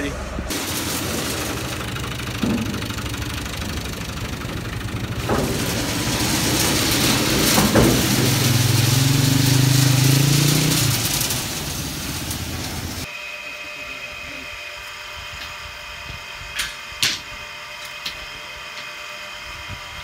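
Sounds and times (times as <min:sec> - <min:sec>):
tractor diesel engine idling: 0:00.0 - 0:13.1
metal clanks of rebar: 0:00.5 - 0:13.1.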